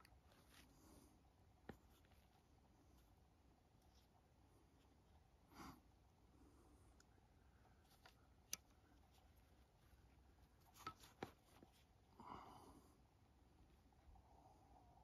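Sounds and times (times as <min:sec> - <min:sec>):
soft breath: 0:00.3 - 0:03.2, 0:03.9 - 0:10.6, 0:11.6 - 0:15.0.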